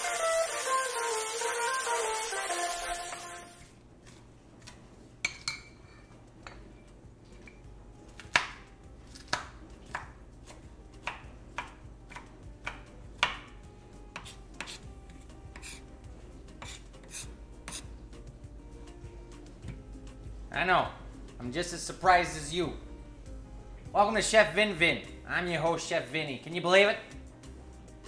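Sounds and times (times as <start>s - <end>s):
knife chopping on cutting board: 8.2s - 15.9s, 16.5s - 17.9s.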